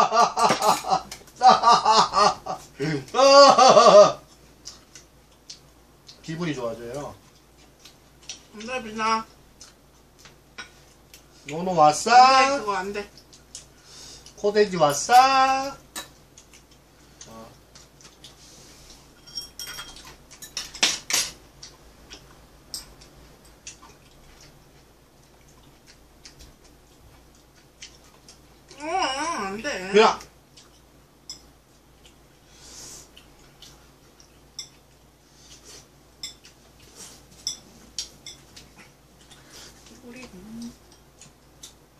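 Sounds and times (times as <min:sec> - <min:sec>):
utensils clinking against dishes: 0:19.1 - 0:21.4, 0:22.7 - 0:23.6, 0:31.2 - 0:31.5, 0:34.5 - 0:34.9, 0:36.2 - 0:38.6
utensils clinking on bowls: 0:19.2 - 0:21.4, 0:22.7 - 0:23.6.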